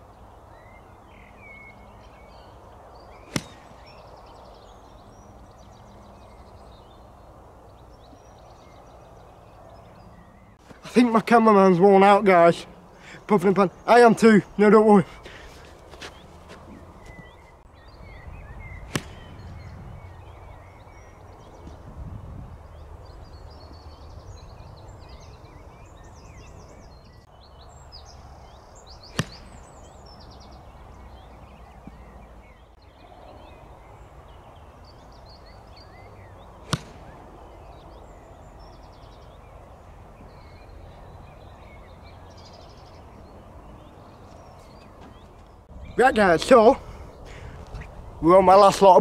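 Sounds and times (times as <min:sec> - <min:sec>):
birdsong: 0:00.0 - 0:49.0
low wind rumble: 0:00.0 - 0:49.0
golf club striking ball: 0:03.2 - 0:04.0, 0:18.9 - 0:19.4, 0:29.1 - 0:29.7, 0:36.7 - 0:37.2.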